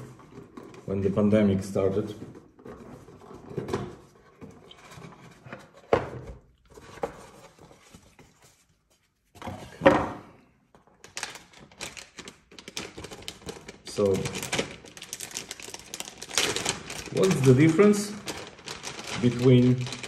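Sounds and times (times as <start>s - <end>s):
plastic bag crinkling: 11.0s - 20.0s.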